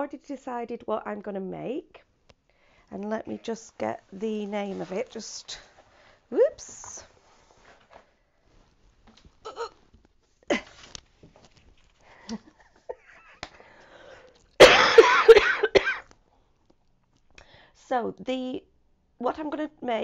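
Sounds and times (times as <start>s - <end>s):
faint small sounds: 2.0s - 14.6s
woman coughing: 14.6s - 16.1s.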